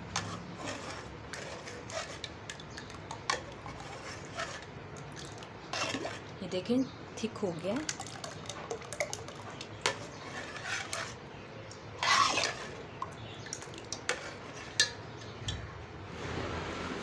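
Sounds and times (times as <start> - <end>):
ladle scraping pot: 0.0 - 6.4, 7.8 - 15.7
liquid sloshing: 0.2 - 6.4, 7.7 - 11.2, 11.8 - 15.8.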